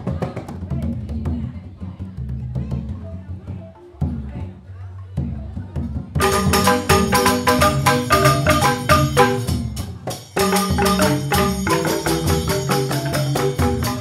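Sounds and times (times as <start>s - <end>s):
bamboo xylophones playing: 6.2s - 14.0s.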